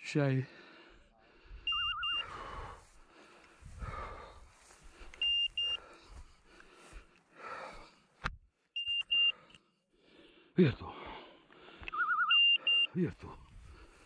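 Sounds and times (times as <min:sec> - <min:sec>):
beeper collar double beep: 0:01.7 - 0:02.2, 0:11.9 - 0:13.0.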